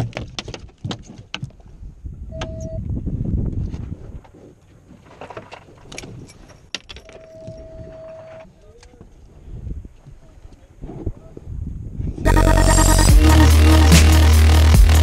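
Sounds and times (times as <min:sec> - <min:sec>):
steady high tone: 0:12.3 - 0:15.0.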